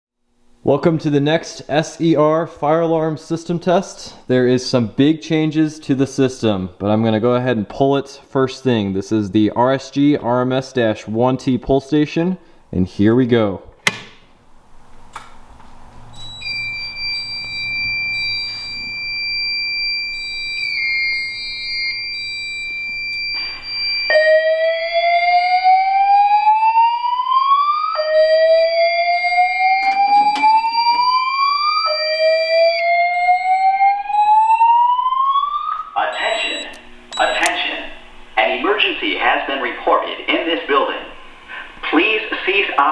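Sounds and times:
fire alarm pull station snap: 0:13.8 - 0:14.2
steady high-pitched alarm tone: 0:16.2 - 0:37.6
whoop alarm rising sweeps: 0:23.4 - 0:37.5.

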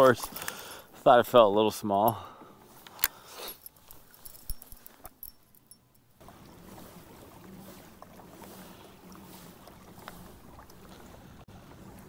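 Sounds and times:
wind: 0:00.0 - 0:12.0
water wash: 0:06.2 - 0:12.0.

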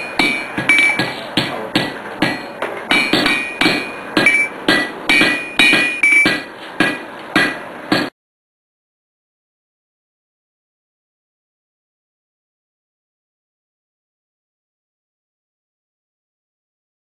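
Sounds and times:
hammer striking on anvil: 0:00.0 - 0:08.1.

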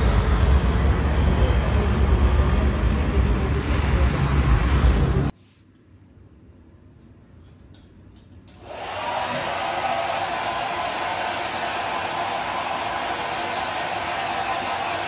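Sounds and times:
hair dryer blowing: 0:08.5 - 0:15.0.

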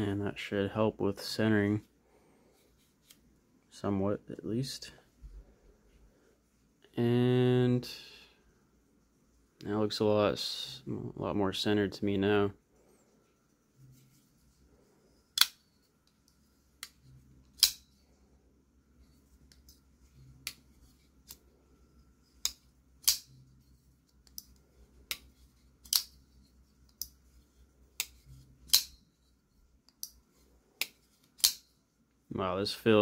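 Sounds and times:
folding knife clicking open and shut: 0:17.6 - 0:17.8, 0:22.4 - 0:23.4, 0:25.8 - 0:26.2, 0:30.8 - 0:31.6.

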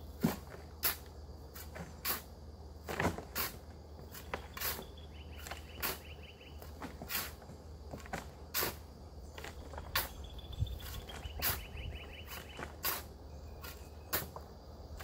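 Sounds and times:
shovel scraping gravel: 0:00.0 - 0:14.4
gravel thudding into plastic wheelbarrow: 0:00.1 - 0:04.8, 0:06.6 - 0:10.2.

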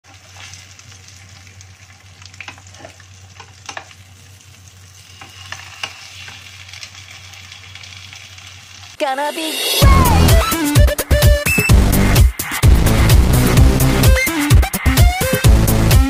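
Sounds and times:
pork chops sizzling in oil: 0:00.0 - 0:09.8.

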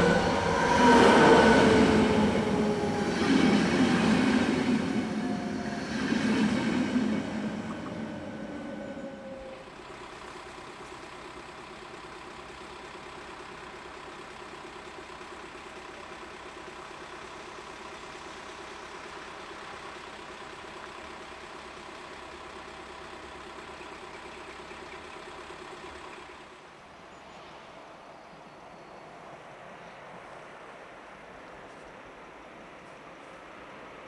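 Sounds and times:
rush of wind: 0:00.0 - 0:09.6
steady whine: 0:00.0 - 0:10.0
vehicle engine idling: 0:00.0 - 0:27.1.

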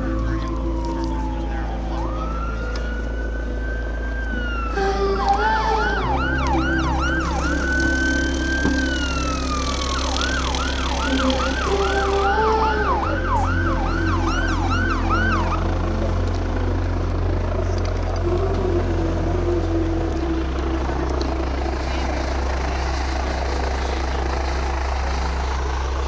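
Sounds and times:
siren yelping: 0:00.0 - 0:17.0
low rumble: 0:00.0 - 0:26.0
siren wailing: 0:00.0 - 0:26.0.

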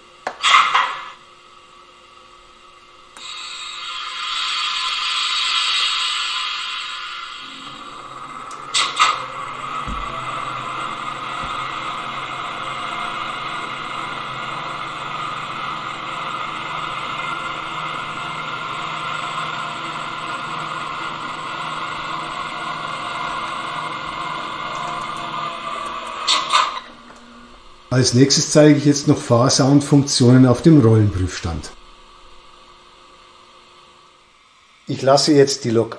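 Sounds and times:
model train rolling and humming: 0:03.2 - 0:27.8.

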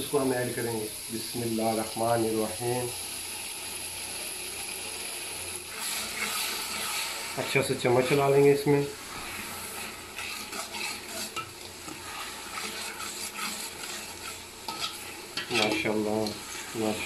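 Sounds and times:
masala sizzling in oil: 0:00.0 - 0:17.0
metal ladle scraping pot: 0:09.1 - 0:16.7.

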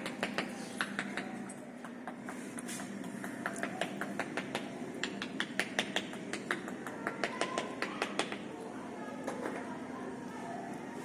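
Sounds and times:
sharp taps and clicks: 0:00.0 - 0:08.5
steady low hum: 0:00.0 - 0:11.0.

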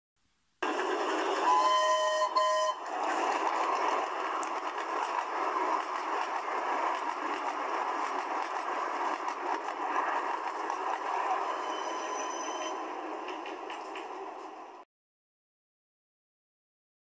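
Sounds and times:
train running: 0:00.6 - 0:14.8
steam train whistle: 0:01.4 - 0:03.0.

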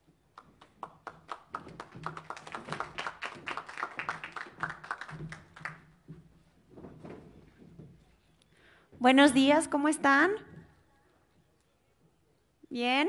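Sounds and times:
small crowd applauding: 0:00.0 - 0:06.1.

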